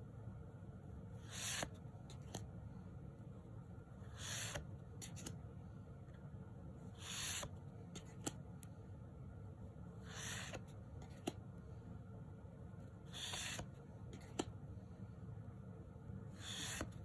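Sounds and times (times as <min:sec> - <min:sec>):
cards sliding off a deck: 0:01.2 - 0:02.5, 0:04.0 - 0:05.4, 0:07.0 - 0:08.5, 0:10.0 - 0:11.4, 0:13.1 - 0:14.6, 0:16.4 - 0:17.0.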